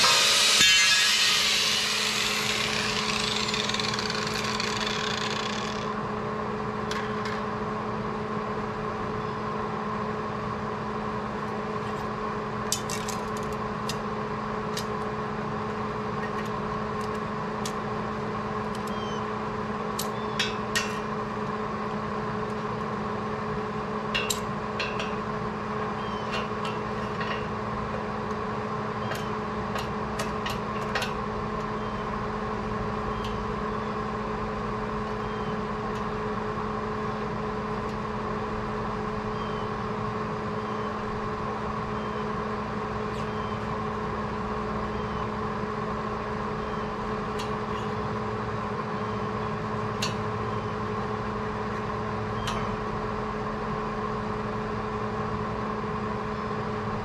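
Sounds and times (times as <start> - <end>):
angle grinder spinning down: 0.0 - 5.9
machine hum: 0.0 - 9.0.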